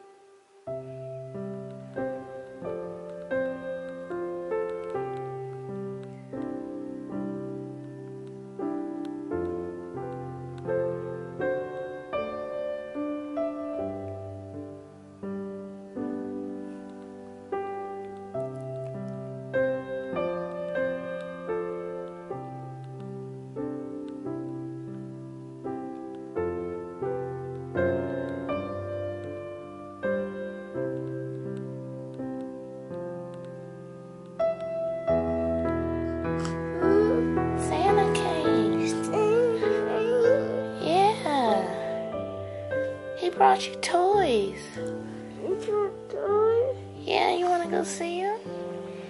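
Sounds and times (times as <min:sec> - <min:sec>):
slow piano melody: 0:00.0 - 0:49.0.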